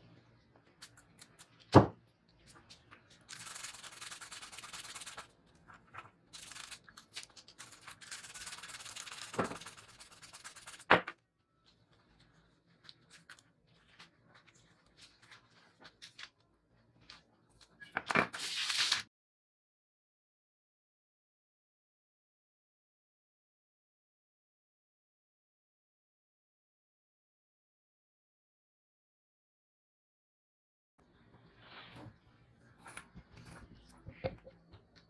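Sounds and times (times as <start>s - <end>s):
toothbrush scrubbing: 3.2s - 5.3s, 6.4s - 10.9s.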